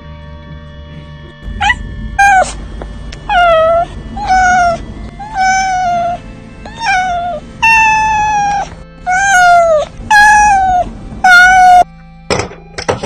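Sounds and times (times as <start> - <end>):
cat meowing: 1.5 - 11.9.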